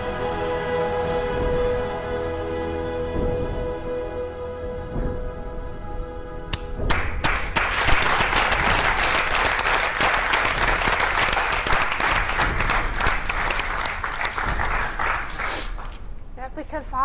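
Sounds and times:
background music: 0.0 - 15.0
audience applauding: 6.9 - 16.0.

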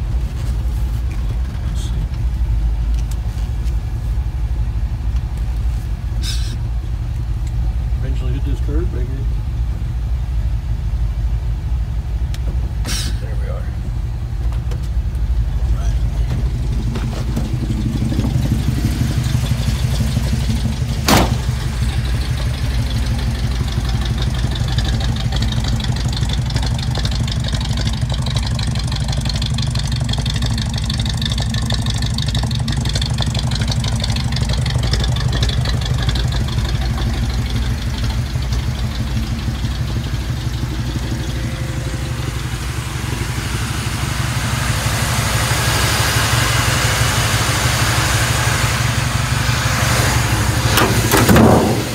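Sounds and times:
engine idling with deep rumble: 0.0 - 51.9
car door shutting: 21.0 - 21.6, 50.6 - 51.9.

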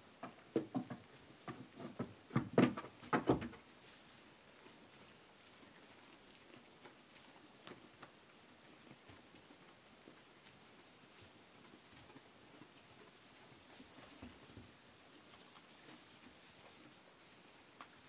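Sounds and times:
sheep rustling in straw: 3.6 - 18.0.

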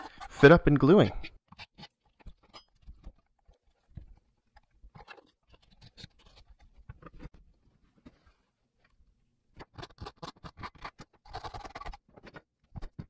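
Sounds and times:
hand tool tapping and scraping plywood: 1.3 - 7.4.

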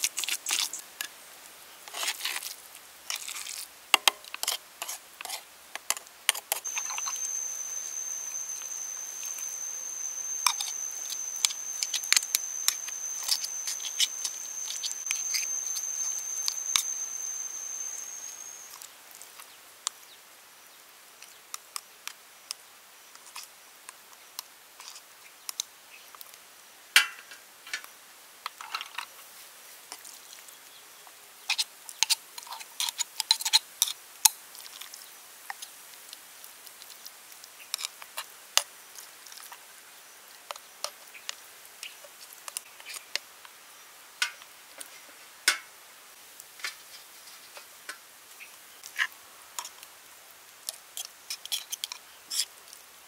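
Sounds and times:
spoon scraping and clicking on shells: 3.1 - 18.8, 50.7 - 52.5.

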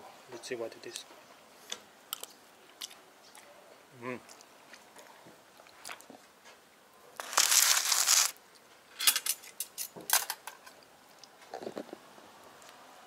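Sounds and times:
crinkly rustling: 7.2 - 8.4.

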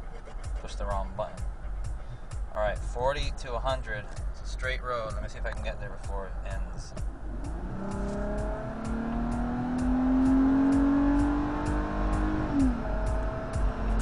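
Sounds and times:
car engine accelerating: 6.7 - 14.0.

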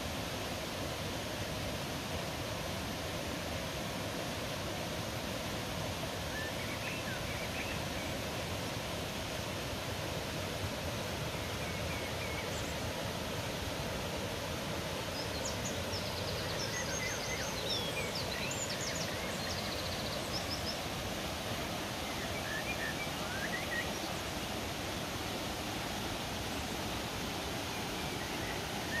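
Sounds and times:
creek water rushing over rocks: 0.0 - 29.0
small birds chirping: 15.0 - 25.1.

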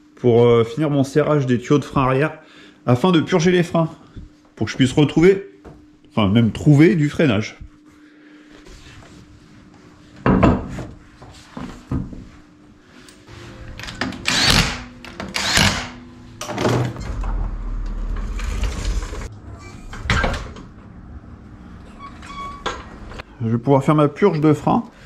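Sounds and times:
low rumble of car lowering: 16.7 - 23.2.

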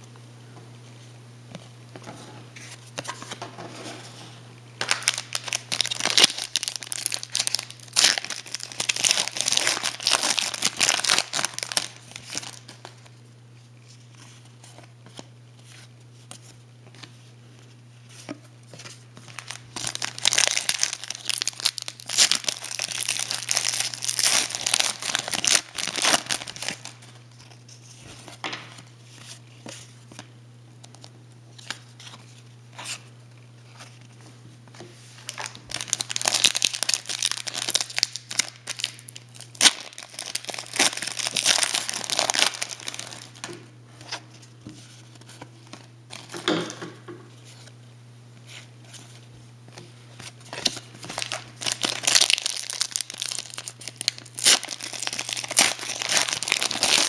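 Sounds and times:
low steady hum: 0.0 - 57.0
wrapper crinkling and tearing: 4.8 - 13.1, 18.8 - 28.4, 35.2 - 44.3, 50.2 - 57.0.

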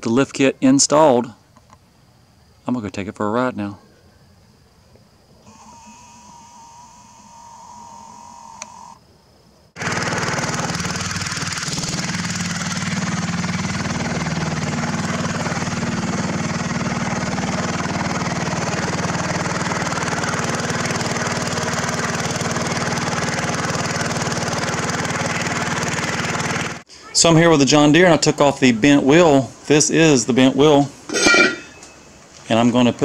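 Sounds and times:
riding lawn mower engine: 9.8 - 27.1, 31.0 - 32.4.

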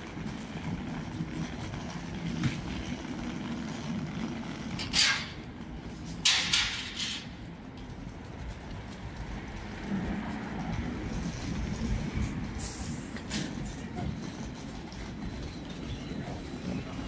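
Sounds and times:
traffic engine rumble: 0.0 - 17.0.

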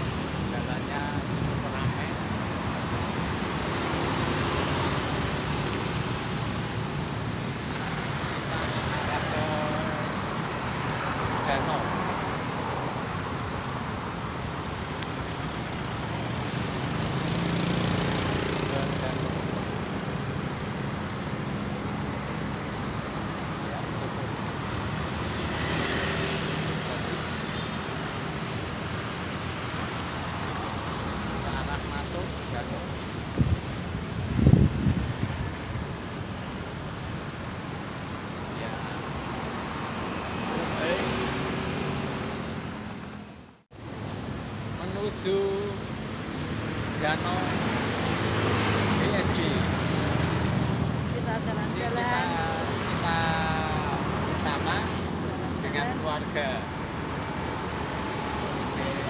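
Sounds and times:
cars passing close by: 0.0 - 59.0
road traffic: 0.0 - 59.0
wind on microphone: 33.2 - 35.9.

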